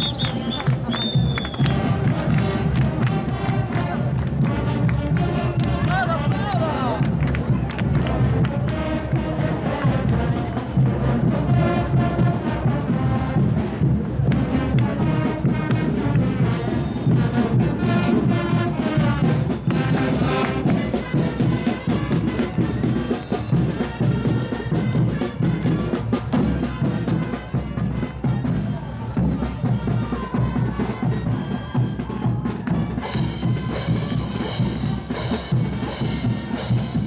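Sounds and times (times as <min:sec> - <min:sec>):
brass band playing dance tune: 0:00.0 - 0:37.0.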